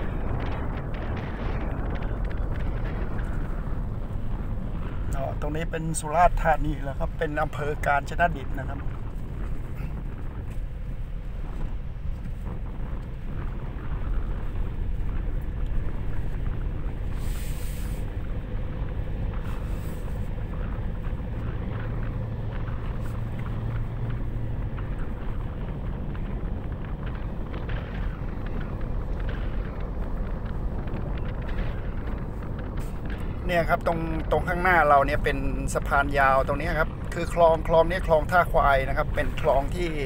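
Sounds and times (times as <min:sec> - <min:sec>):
truck engine and road rumble: 0:00.0 - 0:40.0
brief hisses: 0:17.2 - 0:18.0.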